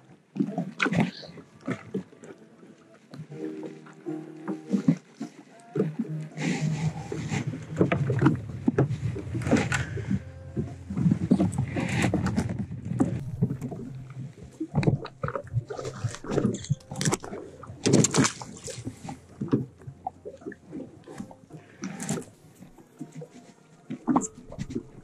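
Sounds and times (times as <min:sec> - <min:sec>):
waves slapping against a hull: 0:00.0 - 0:25.0
low rumble: 0:06.6 - 0:21.5.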